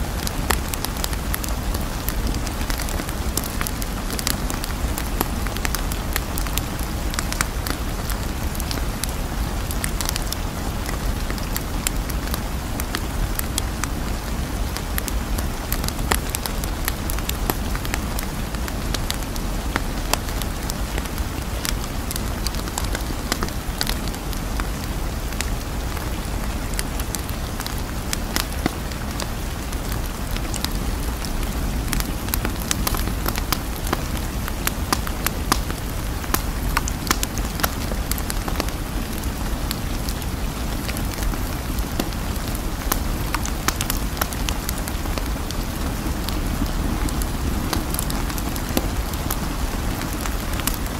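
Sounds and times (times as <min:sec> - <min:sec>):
steady rain: 0:00.0 - 0:50.9.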